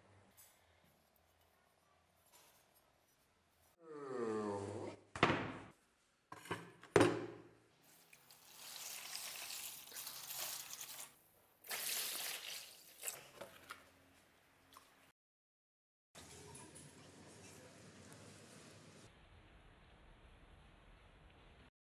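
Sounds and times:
liquid pouring into plastic tub: 0:07.9 - 0:13.8.

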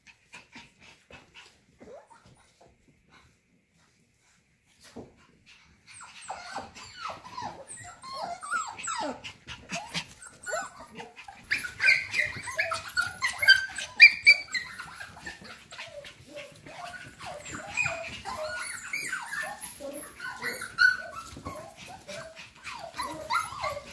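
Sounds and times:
puppies whining and yipping: 0:05.8 - 0:23.9.

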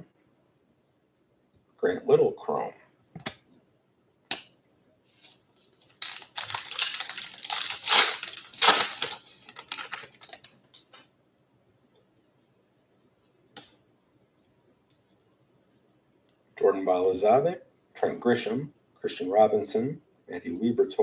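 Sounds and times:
wrapper tearing and crinkling: 0:05.2 - 0:11.0.

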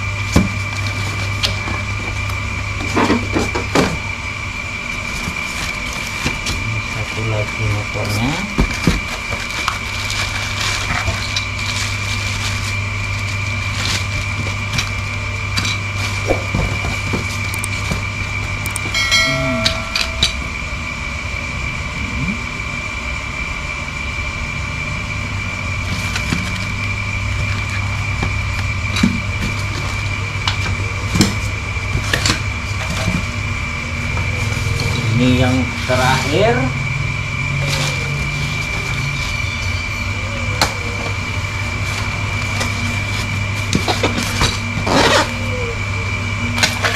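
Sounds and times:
steady background hum: 0:00.0 - 0:46.9
packaging crackling and rustling: 0:08.6 - 0:18.9
short pitched tone: 0:18.7 - 0:21.2.

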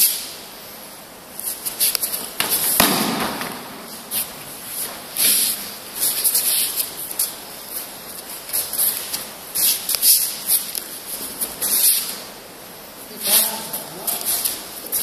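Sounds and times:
bare feet sliding on mats: 0:01.4 - 0:12.4.

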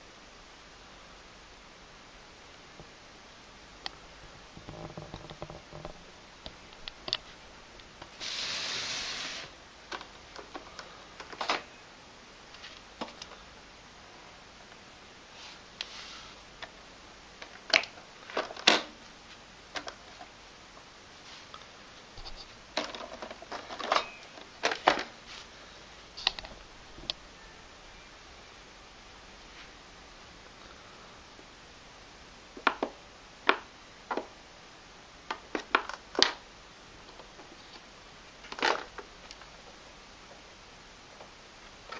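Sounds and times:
rustle or scrape: 0:08.2 - 0:09.6, 0:15.3 - 0:16.5, 0:21.1 - 0:25.6, 0:29.4 - 0:29.8
plastic parts clicking and knocking: 0:22.2 - 0:25.1, 0:35.3 - 0:36.4, 0:38.4 - 0:39.5.

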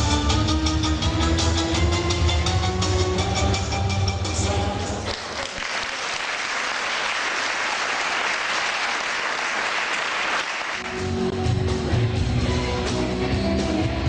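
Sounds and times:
music: 0:00.0 - 0:05.1, 0:10.8 - 0:14.0
audience applauding: 0:05.0 - 0:11.0.

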